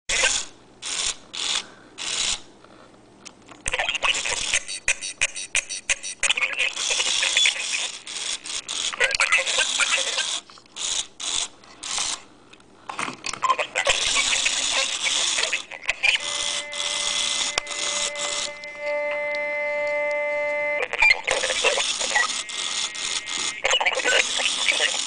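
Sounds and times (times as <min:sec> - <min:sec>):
dense static: 0:03.7 - 0:10.4, 0:13.4 - 0:25.0
glitchy electronic noise: 0:13.5 - 0:19.8, 0:20.8 - 0:25.0
steady buzzing tone: 0:15.3 - 0:24.1.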